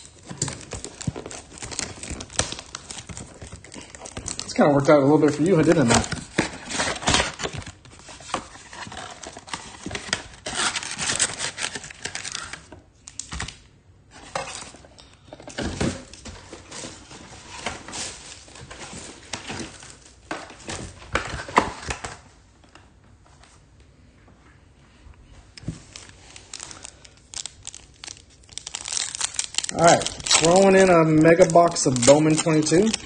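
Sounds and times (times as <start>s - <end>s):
wrappers crinkling and tearing: 0.0s - 13.6s, 25.8s - 33.0s.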